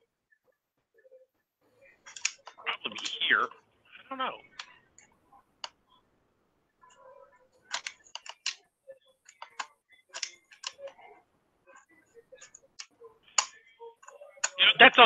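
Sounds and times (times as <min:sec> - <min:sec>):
keyboard and mouse clicks: 0:07.6 - 0:08.6, 0:09.2 - 0:11.0, 0:12.4 - 0:14.6.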